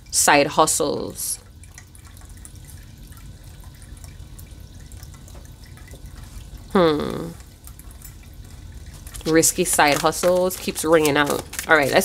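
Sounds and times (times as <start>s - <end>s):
person humming: 6.7s - 7.4s.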